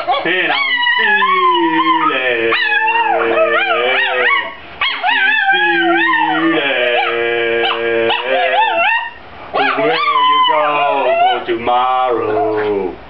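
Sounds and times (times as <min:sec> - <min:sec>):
dog howling: 0:00.0 - 0:12.9
man singing: 0:00.3 - 0:04.5, 0:05.5 - 0:08.9.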